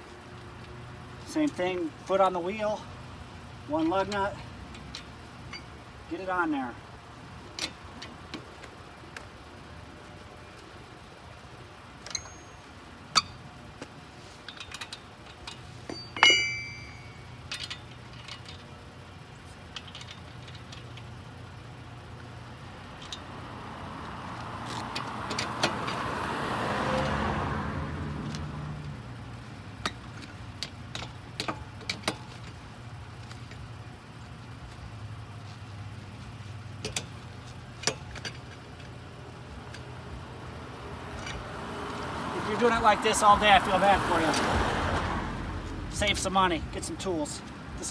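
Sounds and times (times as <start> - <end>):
lug wrench clinking on lug nuts: 3.8 - 5.9, 12.0 - 21.5, 22.8 - 23.4, 24.6 - 26.0, 29.3 - 34.9, 36.7 - 39.0
vehicle passing: 22.9 - 29.6, 39.4 - 47.9.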